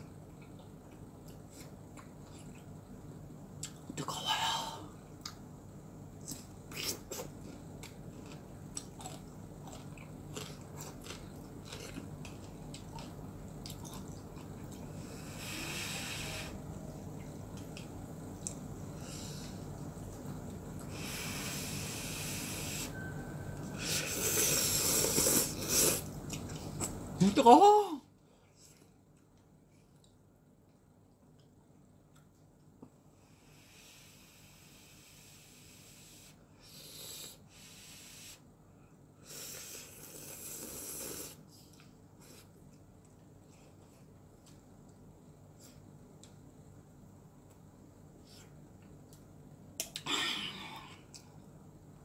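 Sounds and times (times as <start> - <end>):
person slurping noodles: 23.8 - 26.1, 39.2 - 41.4.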